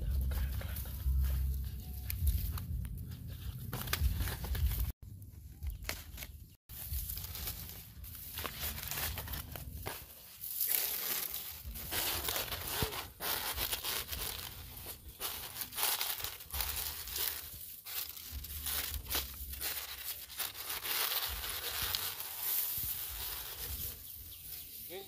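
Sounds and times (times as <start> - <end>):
leaves crinkling and tearing: 5.7 - 24.9.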